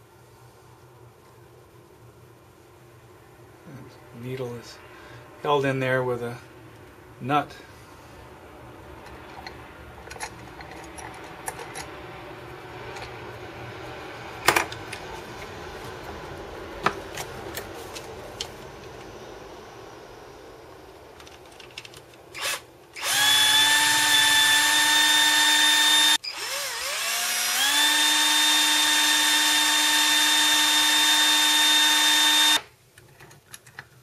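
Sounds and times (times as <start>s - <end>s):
cordless drill whining: 22.4s - 32.7s.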